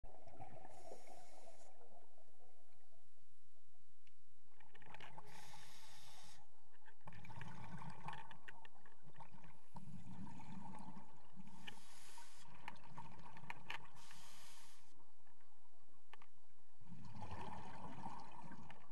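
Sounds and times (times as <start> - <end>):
exhaled air bubbling: 0.0 - 2.6, 7.0 - 14.7, 16.8 - 18.9
regulator inhalation hiss: 5.3 - 6.4, 11.5 - 12.5, 14.0 - 14.9.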